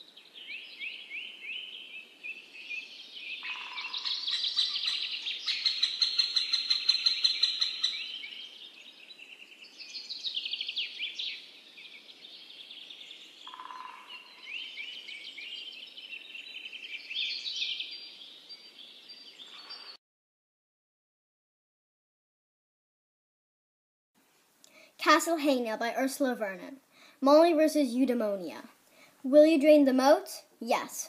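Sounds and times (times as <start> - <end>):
birdsong chirps and trills: 0.0 - 20.0.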